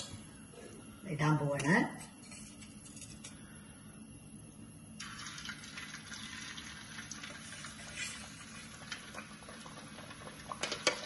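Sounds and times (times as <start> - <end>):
dough sizzling in hot oil: 5.0 - 11.0.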